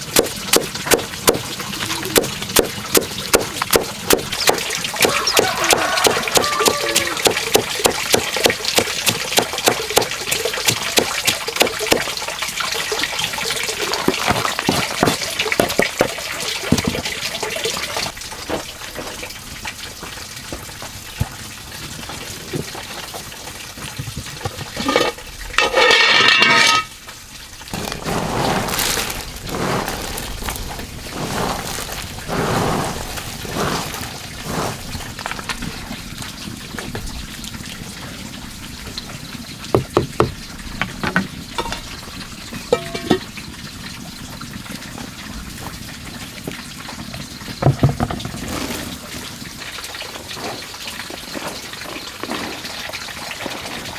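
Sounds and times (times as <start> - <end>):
water running: 0.0 - 53.9
vegetables mixed by hand on tray: 27.7 - 35.3.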